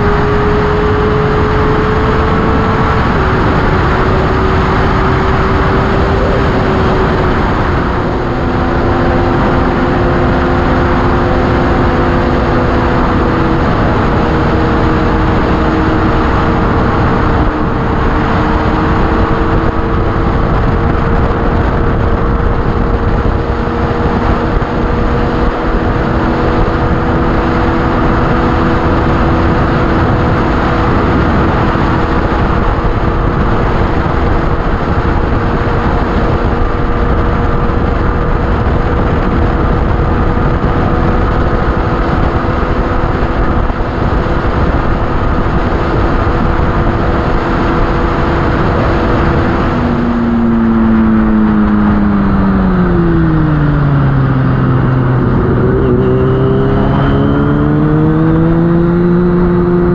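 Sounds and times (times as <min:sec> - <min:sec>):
motorcycle engine at highway speed: 0:00.0 - 0:59.9
wind and road rush: 0:00.0 - 0:59.9.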